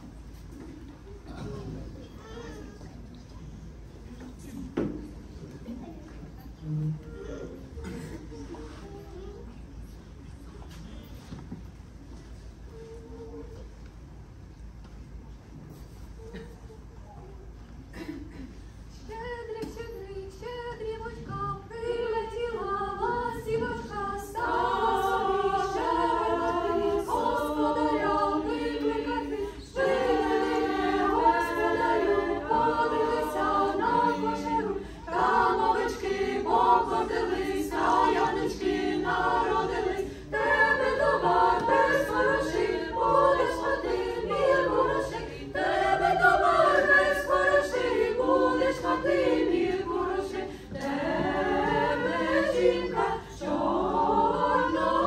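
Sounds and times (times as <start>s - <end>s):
choir singing a cappella: 19.4s - 55.0s.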